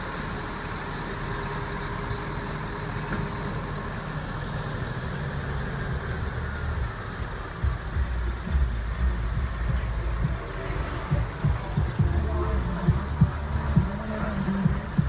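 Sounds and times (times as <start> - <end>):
diesel lorries driving slowly past: 0.0 - 15.0.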